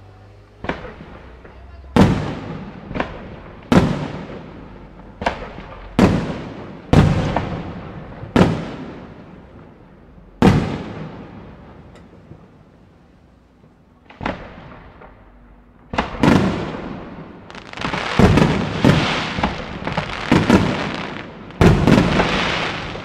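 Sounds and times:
firework shells bursting: 14.1 - 23.0.

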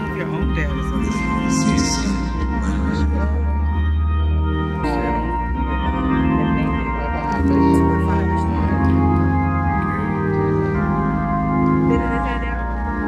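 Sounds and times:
organ playing sustained chords: 0.0 - 13.0.

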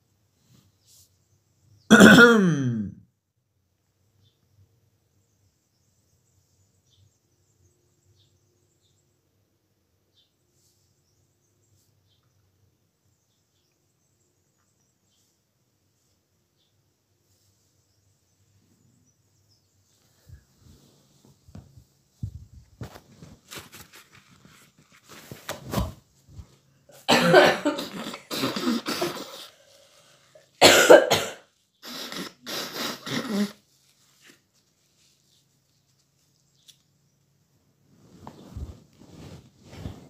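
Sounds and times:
man coughing: 1.9 - 3.0, 27.0 - 29.5, 30.6 - 33.6.

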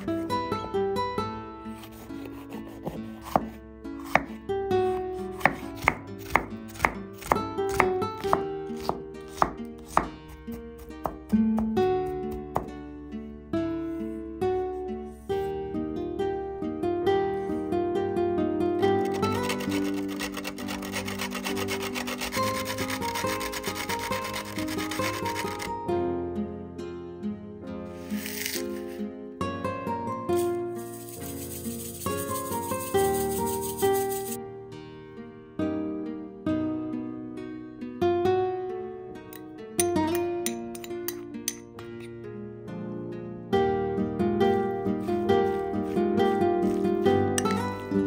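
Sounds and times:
soft background music: 0.0 - 48.0
knife chopping on wooden board: 1.8 - 4.4, 5.4 - 12.8
bread scraping on box grater: 19.0 - 25.7, 30.9 - 34.4.

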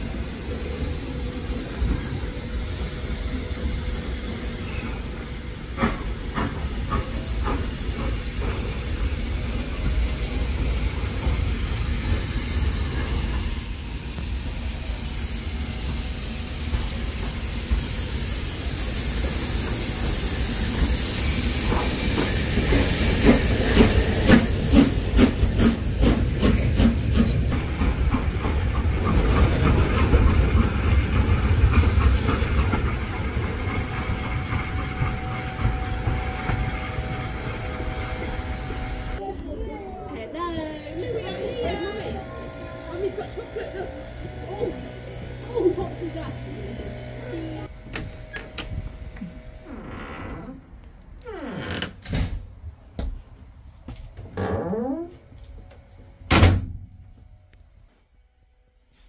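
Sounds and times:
locomotive exhaust beats: 0.0 - 39.2
steam locomotive hissing: 0.0 - 39.2, 40.8 - 49.6.

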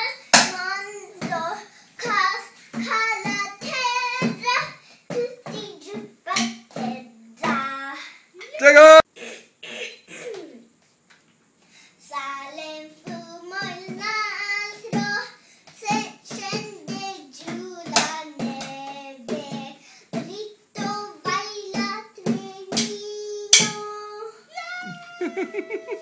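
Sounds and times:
girl singing wavering notes: 22.7 - 26.0.

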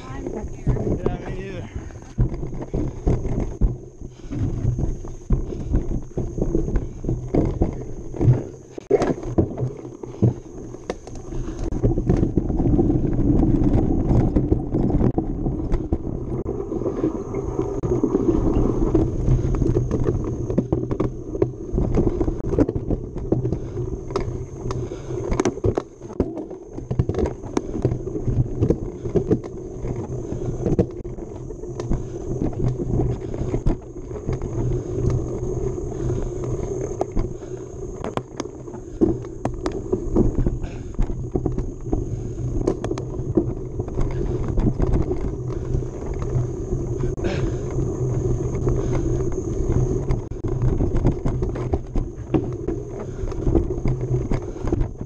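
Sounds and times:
bike clattering over bumps: 0.0 - 55.0
bike tyres rumbling on dirt: 0.0 - 55.0.

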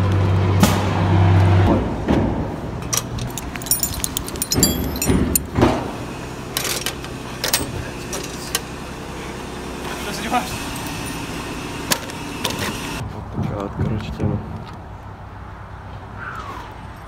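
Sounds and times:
harness buckles clinking: 2.8 - 5.6, 7.4 - 8.4, 10.7 - 11.2.

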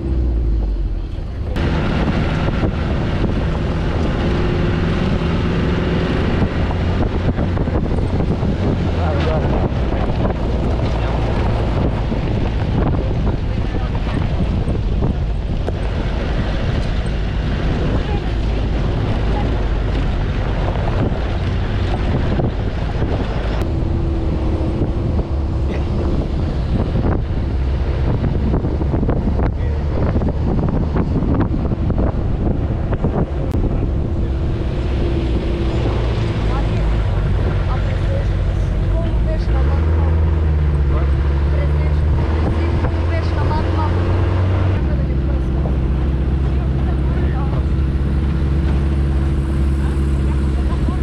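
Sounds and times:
vehicle engine rumble: 0.0 - 51.0
wind buffeting microphone: 0.0 - 51.0.

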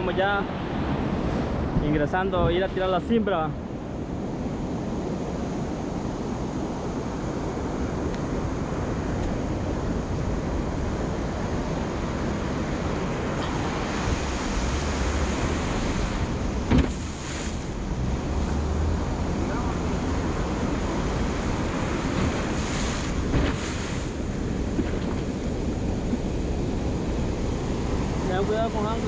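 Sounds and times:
surf and foaming water: 0.0 - 29.0
wind on microphone: 0.0 - 29.0
thump: 16.7 - 17.1, 23.3 - 23.6.

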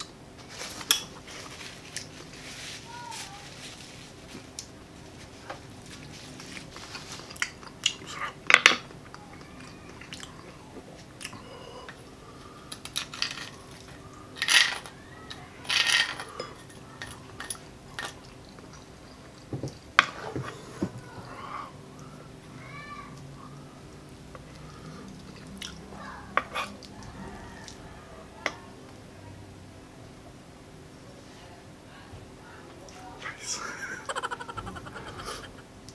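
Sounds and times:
chewing and mouth noises: 9.0 - 11.4, 24.4 - 27.8.

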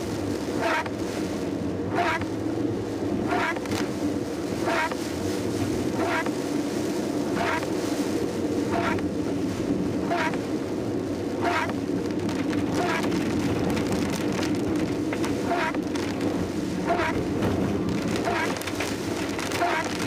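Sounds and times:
rain on a car: 0.0 - 20.0
road and engine noise: 0.0 - 20.0
windscreen wipers swishing: 0.0 - 20.0.

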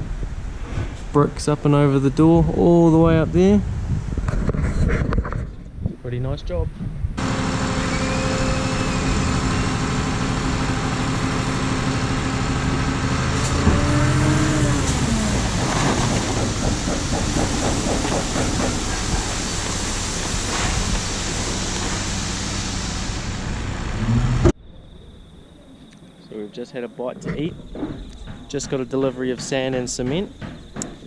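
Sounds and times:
truck engine running: 7.2 - 24.6.

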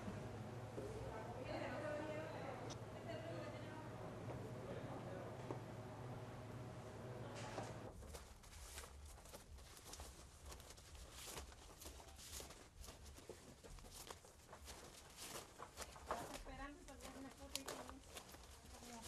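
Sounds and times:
leaves rustling and crackling: 8.1 - 19.0.

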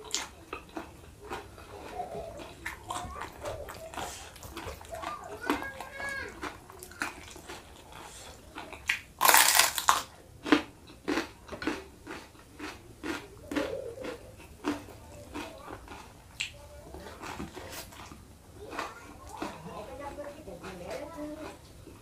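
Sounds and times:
chewing crunchy food: 0.0 - 22.0
crunching bite: 3.7 - 16.6.

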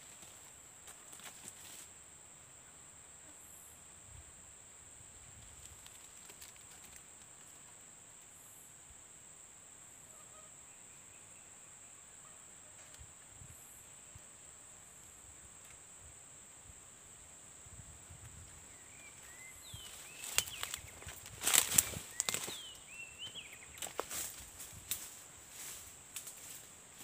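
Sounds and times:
rustling: 0.0 - 1.9, 5.4 - 7.6, 19.6 - 27.0
high-pitched insect drone: 16.6 - 27.0
faint bird calls: 18.6 - 24.3
sharp chirping calls: 18.7 - 24.2.

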